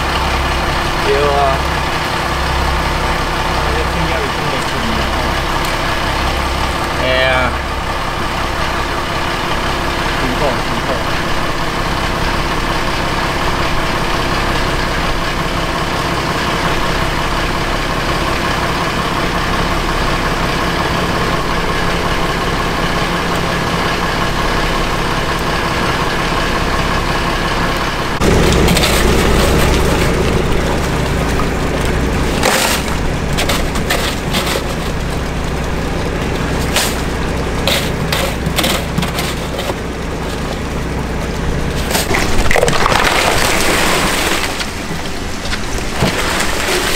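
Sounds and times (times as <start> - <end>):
boat engine idling: 0.0 - 42.4, 43.7 - 46.9
sharp knocks and rattles: 28.2 - 46.9.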